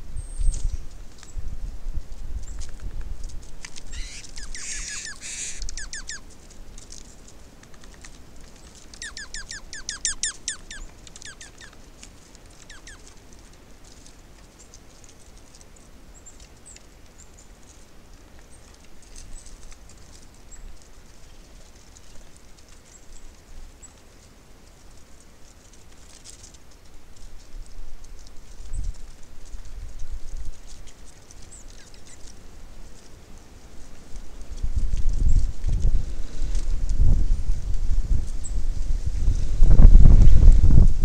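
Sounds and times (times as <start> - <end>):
faint high bird ticks: 2.4 - 37.1
songbirds chirping: 3.7 - 34.2.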